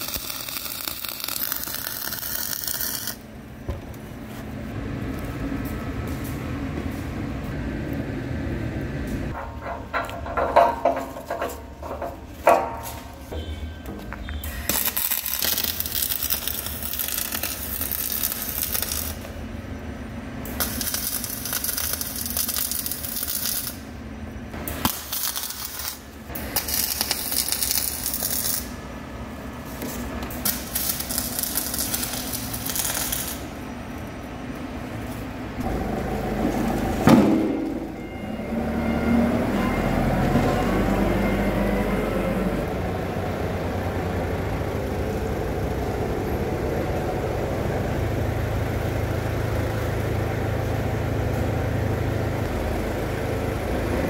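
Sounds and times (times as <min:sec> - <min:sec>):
welding arc crackling: 0:00.0 - 0:03.6, 0:14.4 - 0:19.5, 0:20.4 - 0:24.0, 0:24.6 - 0:28.8, 0:29.8 - 0:34.1
forklift engine running: 0:33.4 - 0:54.0
loud metal clank: 0:37.0 - 0:38.0.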